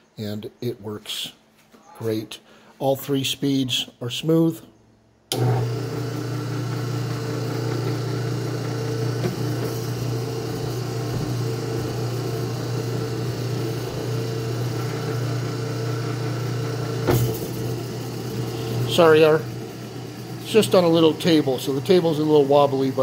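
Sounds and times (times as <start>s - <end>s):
stand mixer humming: 5.3s - 23.0s.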